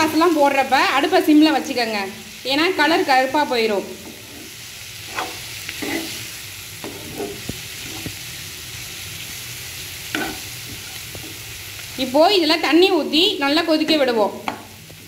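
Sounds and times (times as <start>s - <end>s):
food sizzling: 0.0s - 15.0s
metal spatula scraping a pan: 3.9s - 8.2s, 10.1s - 11.4s.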